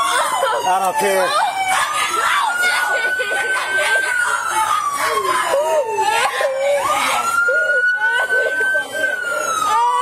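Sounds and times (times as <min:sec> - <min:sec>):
people's voices: 0:00.0 - 0:10.0
police siren wailing: 0:00.0 - 0:10.0.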